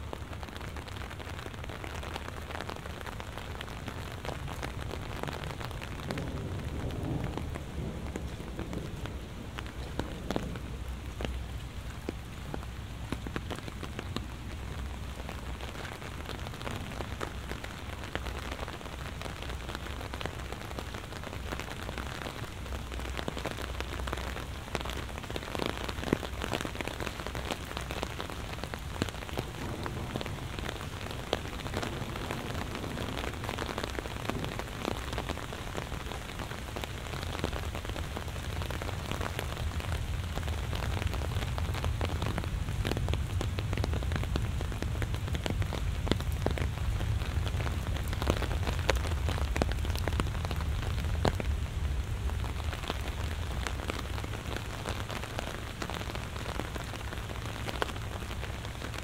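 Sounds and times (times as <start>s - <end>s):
heavy rain: 0.0s - 59.0s.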